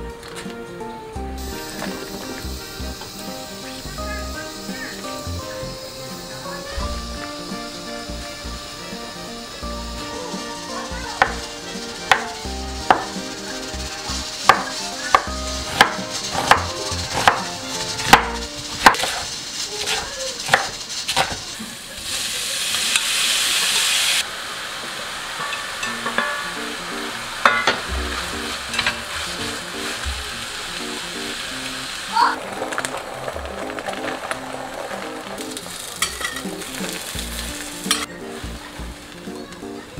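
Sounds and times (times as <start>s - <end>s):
food sizzling in a pan: 1.2s - 39.9s
stir-frying in a pan: 1.4s - 39.9s
knife chopping on wooden board: 12.9s - 13.1s, 14.5s - 19.2s, 20.5s - 21.4s.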